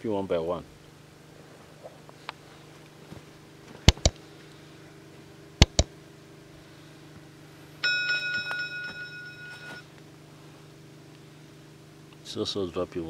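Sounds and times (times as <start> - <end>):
mouse clicks: 3.9 - 4.2, 5.6 - 5.9
ringing bell chime: 7.8 - 9.9.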